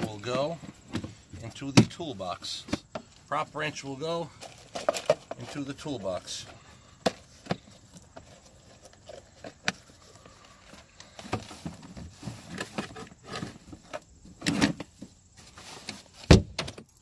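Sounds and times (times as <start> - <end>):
tools clattering: 4.3 - 5.8.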